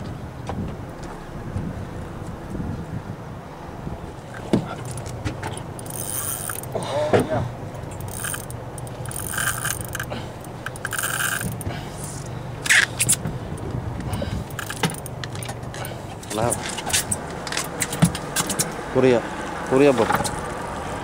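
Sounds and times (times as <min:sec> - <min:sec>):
low hum: 0:00.0 - 0:17.7
fishing reel buzzing: 0:05.6 - 0:06.8, 0:07.8 - 0:13.2, 0:14.5 - 0:15.1.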